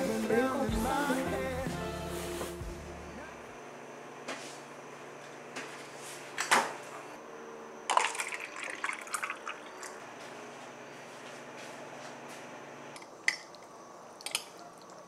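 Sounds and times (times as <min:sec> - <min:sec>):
drink pouring into plastic cup: 0:07.9 - 0:10.0.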